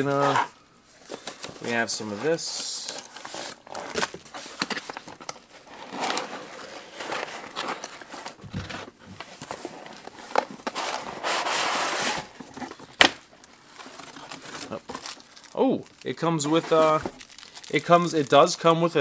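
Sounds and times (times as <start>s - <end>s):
cardboard flaps scraping and rustling: 0.1s - 12.8s, 16.5s - 17.4s.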